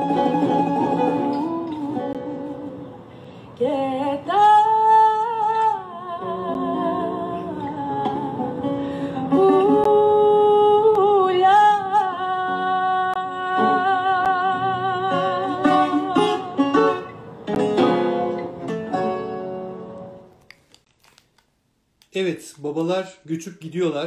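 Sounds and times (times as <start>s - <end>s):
guitar and bouzouki: 0.0s - 3.2s, 6.2s - 10.4s, 11.8s - 20.3s
woman singing with vibrato: 0.0s - 17.1s.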